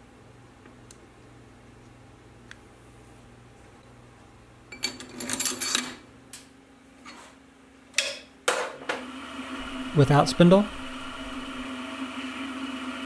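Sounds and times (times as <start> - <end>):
metal parts clinking: 4.7 - 6.0
spindle motor humming: 9.0 - 13.0.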